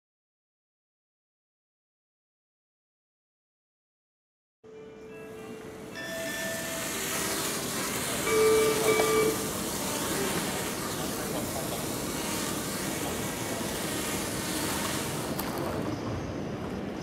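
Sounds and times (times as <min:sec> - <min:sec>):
drone propellers whirring: 0:05.8 - 0:16.0.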